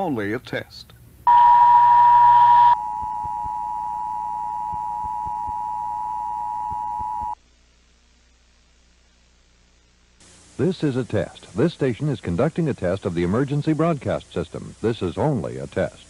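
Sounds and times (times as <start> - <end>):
two-note alarm tone: 1.3 - 7.4.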